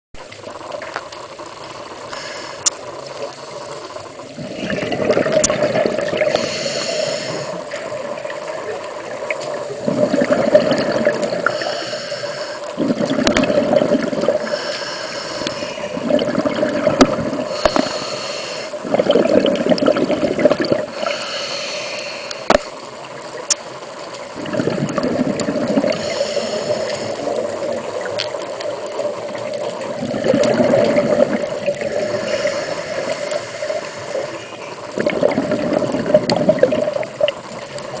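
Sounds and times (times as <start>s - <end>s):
regulator hiss on inhale: 1.9s - 4.7s, 6.2s - 8.5s, 11.2s - 13.0s, 14.4s - 16.0s, 17.4s - 18.8s, 20.8s - 23.1s, 25.8s - 28.1s, 31.6s - 35.0s
bubbles rushing on exhale: 4.1s - 12.0s, 12.6s - 21.2s, 24.2s - 38.0s.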